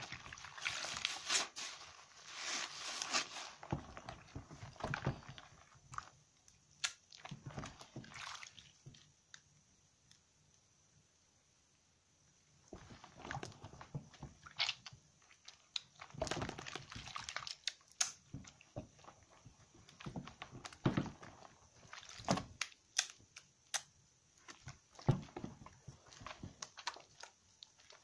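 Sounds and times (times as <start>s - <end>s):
wet soap squelching in hands: 0.0s - 6.2s, 6.8s - 9.4s, 12.7s - 23.5s, 24.4s - 28.0s.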